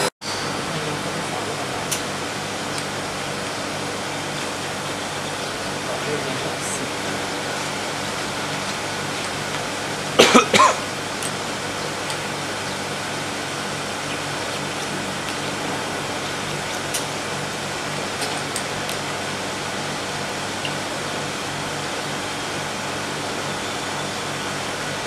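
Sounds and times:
extruder machine hum: 0:00.0 - 0:25.0
loud short coughs: 0:10.2 - 0:10.8.

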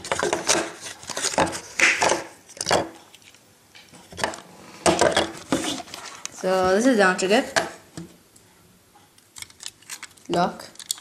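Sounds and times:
plastic wrapping crinkling: 0:09.2 - 0:11.0.

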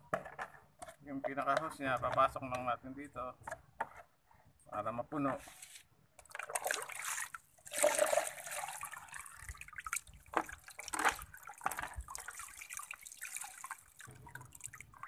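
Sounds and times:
water pouring into a basin: 0:06.3 - 0:15.0.

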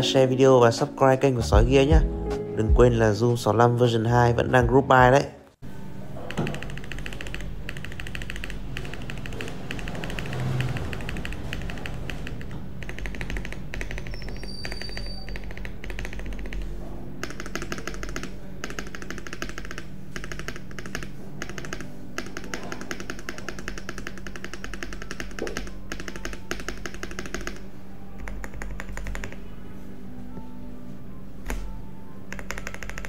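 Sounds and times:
mechanical keyboard typing: 0:06.2 - 0:29.4, 0:32.3 - 0:33.0.

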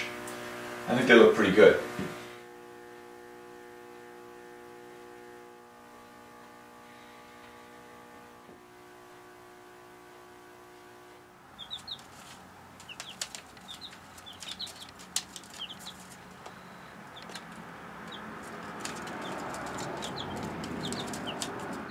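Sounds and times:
faint steady hum: 0:00.0 - 0:21.9
chicks peeping: 0:11.5 - 0:21.9
pecking clicks on newspaper: 0:11.6 - 0:16.6, 0:17.2 - 0:21.9
rustling: 0:11.7 - 0:21.9.

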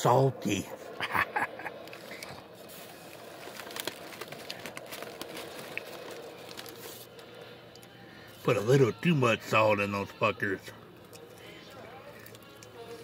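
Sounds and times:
low room hum: 0:00.0 - 0:13.0
chewing french fries: 0:01.8 - 0:08.4, 0:11.0 - 0:13.0.

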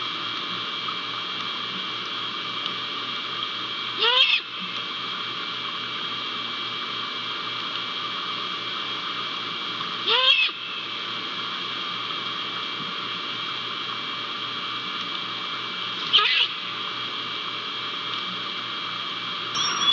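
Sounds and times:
steady hiss and hum: 0:00.0 - 0:19.9
owl call: 0:04.0 - 0:04.5, 0:10.1 - 0:10.7, 0:16.1 - 0:16.6, 0:19.6 - 0:19.9.

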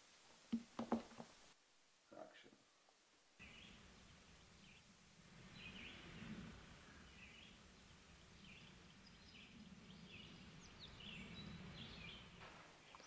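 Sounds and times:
low steady rumble: 0:03.4 - 0:12.5
distant birds calling: 0:03.4 - 0:13.0.

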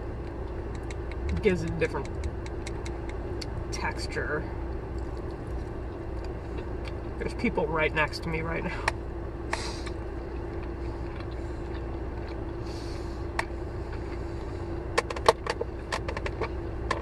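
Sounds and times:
low hum in car cabin: 0:00.0 - 0:17.0
sharp clicks and taps: 0:00.7 - 0:03.5.

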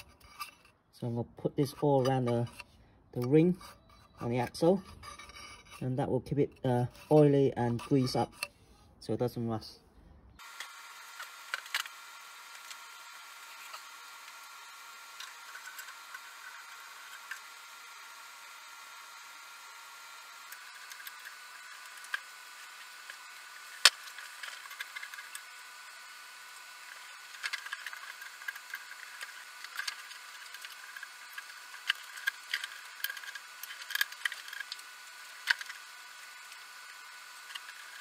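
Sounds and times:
tools and parts clicking: 0:00.0 - 0:00.8, 0:10.6 - 0:11.9, 0:20.5 - 0:25.6, 0:26.8 - 0:38.0.

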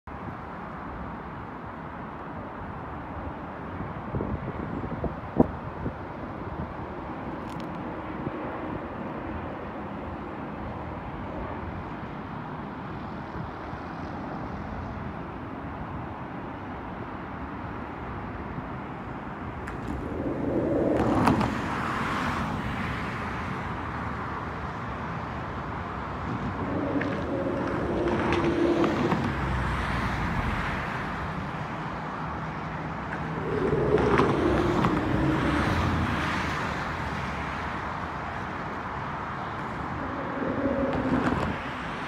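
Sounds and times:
background traffic rumble: 0:00.1 - 0:42.0
cars passing: 0:16.6 - 0:42.0.

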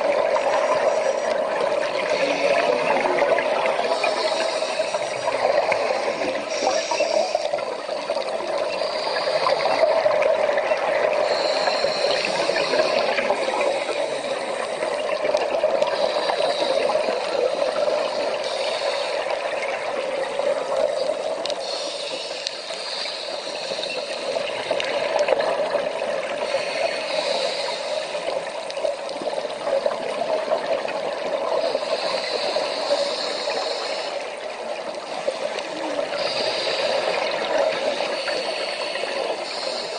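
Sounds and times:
underwater rushing water: 0:00.0 - 0:39.9.

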